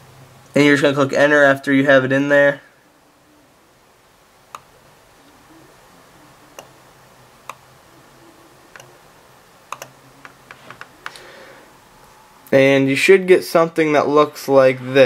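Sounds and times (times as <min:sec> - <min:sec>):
faint low hum: 0:00.0 - 0:15.0
keyboard and mouse clicks: 0:08.7 - 0:09.0, 0:09.7 - 0:11.2.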